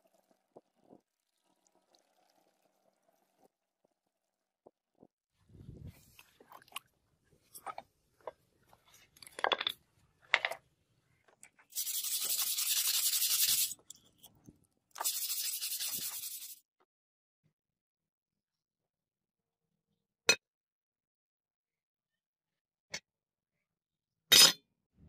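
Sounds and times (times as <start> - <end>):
brush scrubbing metal blade: 11.7 - 13.8, 15.0 - 16.6.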